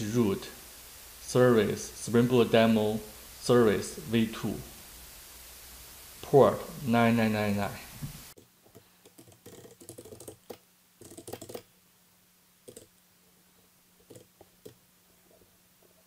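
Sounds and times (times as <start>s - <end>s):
computer keyboard typing: 9.0s - 11.7s, 12.7s - 12.9s, 14.0s - 14.8s.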